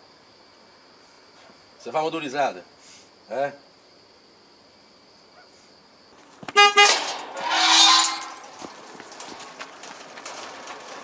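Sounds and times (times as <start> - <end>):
car horn toots: 6.6 - 7.1
loud rushing noise: 6.8 - 8.7.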